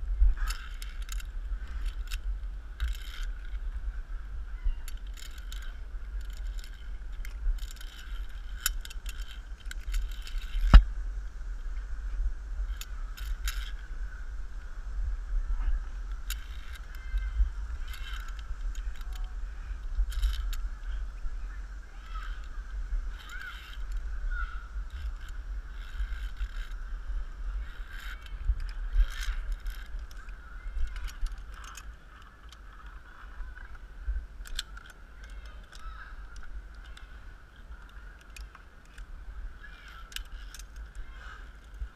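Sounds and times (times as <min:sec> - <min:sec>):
camera handling rumble: 0:00.1 - 0:14.7, 0:15.5 - 0:41.9
carabiners clicking on steel cable: 0:00.2 - 0:10.9, 0:11.6 - 0:14.0, 0:14.6 - 0:41.9.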